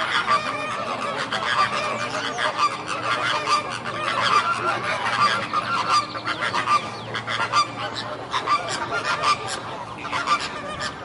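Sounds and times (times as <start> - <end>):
flamingos honking: 0.0 - 11.0.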